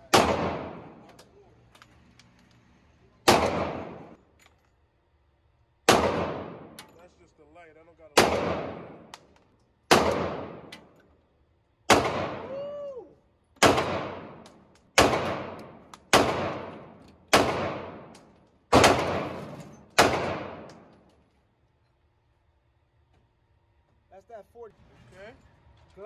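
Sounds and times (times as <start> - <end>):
pistol shots echoing indoors: 0.0 - 1.0, 5.8 - 6.8, 8.2 - 9.1, 9.9 - 10.7, 13.6 - 19.4, 20.0 - 20.9.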